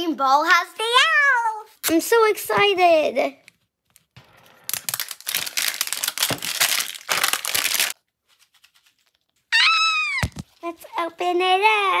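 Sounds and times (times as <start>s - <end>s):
paper wrapper crinkling and tearing: 3.9s - 9.6s
child squealing: 9.5s - 10.4s.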